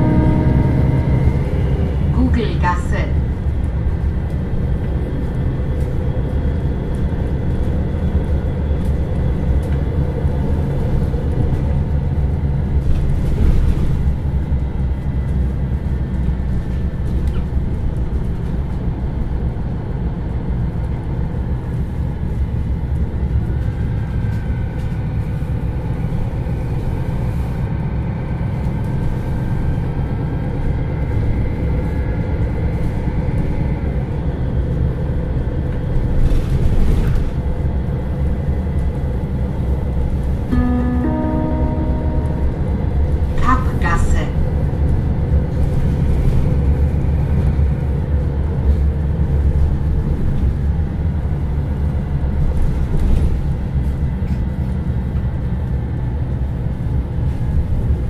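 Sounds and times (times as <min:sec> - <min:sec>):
faint rising whine: 0:00.0 - 0:02.4
bus diesel engine rumbling: 0:00.0 - 0:58.0.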